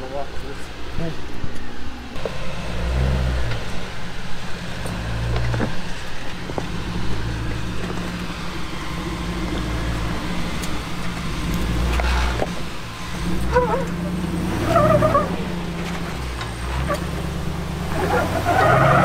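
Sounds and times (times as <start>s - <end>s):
off-road vehicle engine revving: 2.2s - 19.0s.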